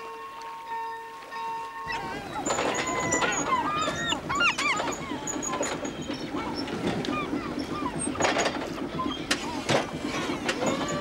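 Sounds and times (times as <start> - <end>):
gulls calling: 0.0 - 11.0
forklift motor running: 2.0 - 11.0.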